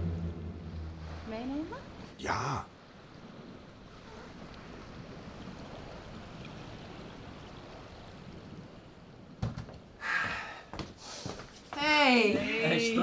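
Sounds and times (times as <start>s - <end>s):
small waves lapping on shore: 0.0s - 9.4s.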